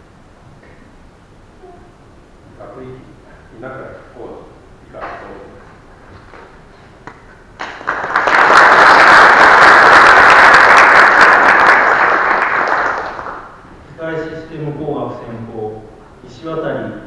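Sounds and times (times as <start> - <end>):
audience applauding: 7.6 - 13.6.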